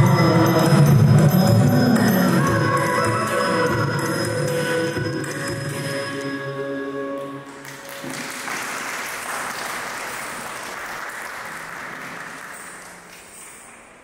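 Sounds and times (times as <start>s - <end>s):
dance music: 0.0s - 7.1s
audience applauding: 7.6s - 14.0s.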